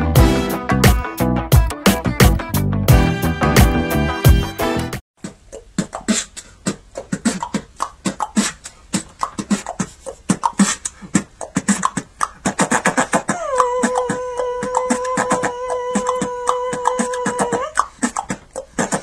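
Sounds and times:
music: 0.0 - 5.0
person beatboxing into a microphone: 5.2 - 19.0.

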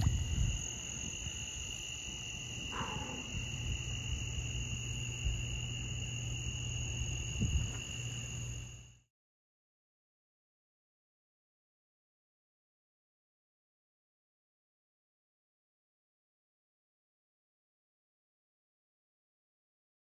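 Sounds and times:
insects ringing: 0.0 - 8.9
steady low hum: 0.0 - 9.1
frog call: 2.6 - 4.0.

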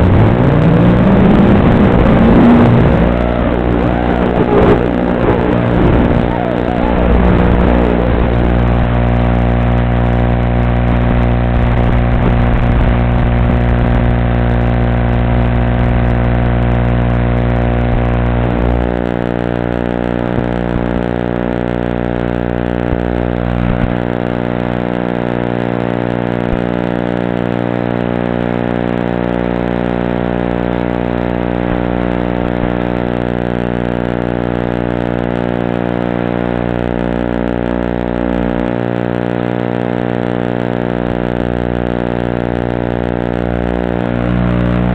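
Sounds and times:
quadcopter droning buzz: 0.0 - 12.4.

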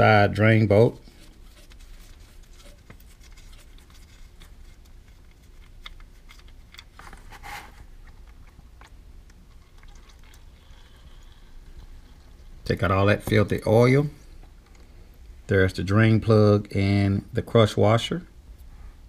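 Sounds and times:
oil stream into plastic pan: 0.3 - 13.8.

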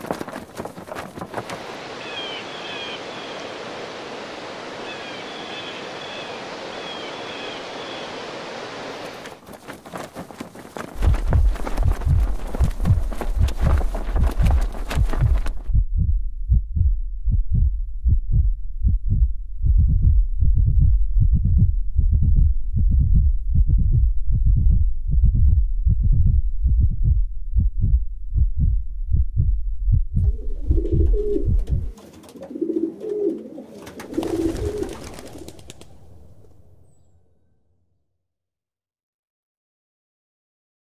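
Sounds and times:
wings fluttering: 0.0 - 3.6, 9.0 - 15.7, 30.2 - 37.0
deep thumping heartbeat pulse: 11.0 - 32.0
pigeons cooing: 30.3 - 36.0.

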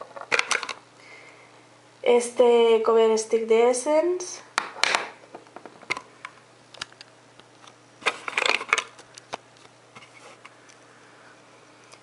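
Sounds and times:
plastic tubes clicking and clattering: 0.0 - 0.8, 8.0 - 9.3.

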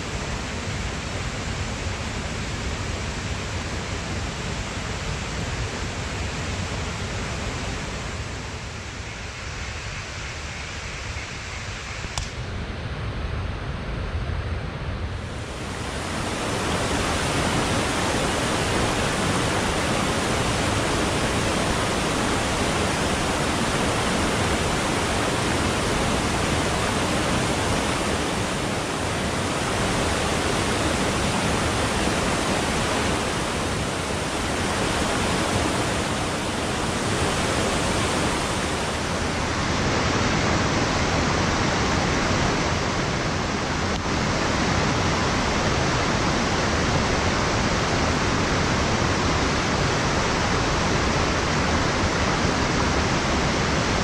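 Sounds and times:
small click: 12.1 - 12.4
stream rushing: 15.2 - 54.0.

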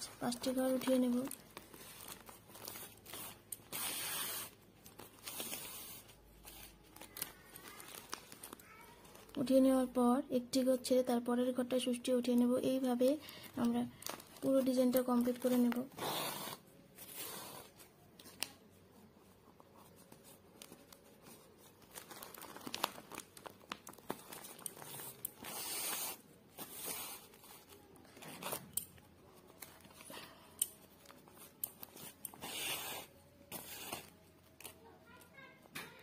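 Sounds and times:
plastic crinkling: 0.0 - 9.9, 12.3 - 16.0, 20.0 - 36.0
yarn scratching through plastic sack: 32.0 - 34.2.

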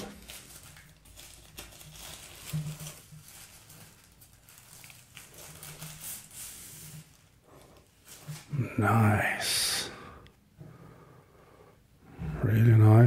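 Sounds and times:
plastic sleeve rustling and crinkling: 0.0 - 8.6.

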